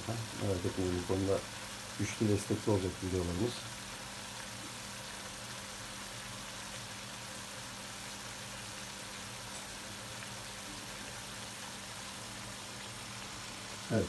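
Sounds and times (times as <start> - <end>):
greens sizzling in a frying pan: 0.0 - 14.0.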